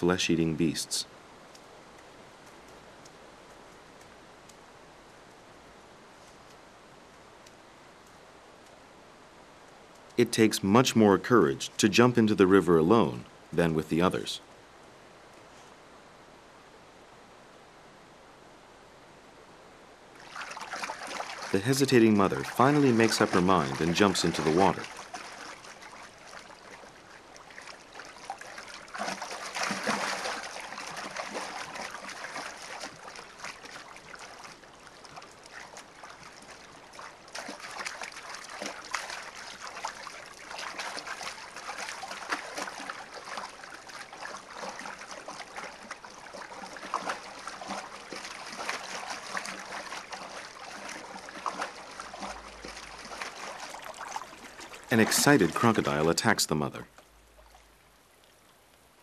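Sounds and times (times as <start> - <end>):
animal splashing through water: 20.2 - 58.5.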